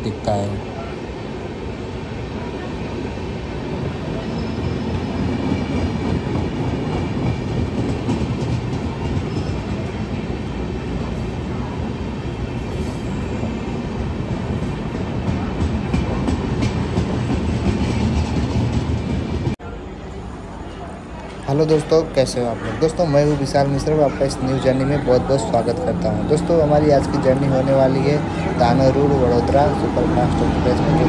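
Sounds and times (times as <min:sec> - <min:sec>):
train wheels rolling on rails: 0:01.6 - 0:19.6.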